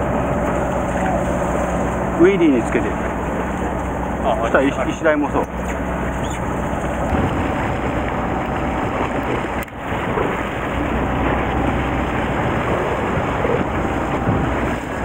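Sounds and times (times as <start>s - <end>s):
water washing against boat: 0.0s - 15.0s
wind on microphone: 6.1s - 15.0s.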